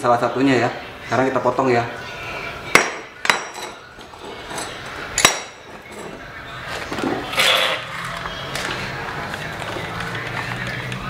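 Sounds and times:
rustling handling noise: 0:05.7 - 0:11.0.

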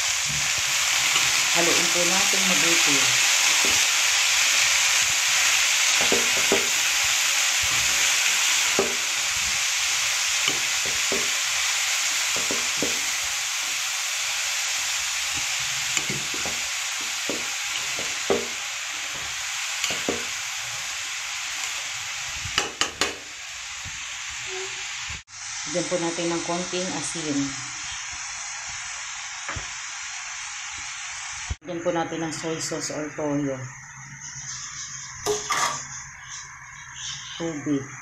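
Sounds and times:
vegetables sizzling in a pan: 0:00.0 - 0:38.0
spatula scraping and knocking pan: 0:00.2 - 0:13.8, 0:15.3 - 0:23.3.

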